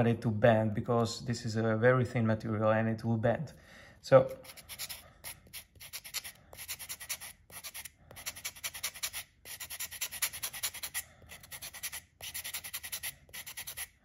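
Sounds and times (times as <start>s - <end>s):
sanding block rubbing metal sheet: 4.3s - 14.0s.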